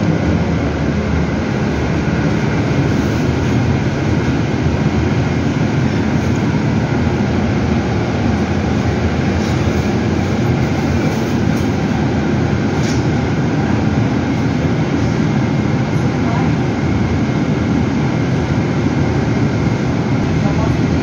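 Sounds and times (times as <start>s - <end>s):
road and tyre rumble: 0.0s - 16.0s
air conditioning: 0.0s - 21.0s.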